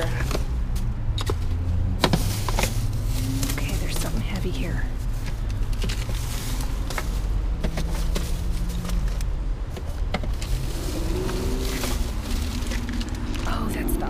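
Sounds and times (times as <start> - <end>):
plastic bags rustling: 0.0 - 14.0
steady low rumble: 0.0 - 14.0
item dragged out of metal dumpster: 10.4 - 13.2.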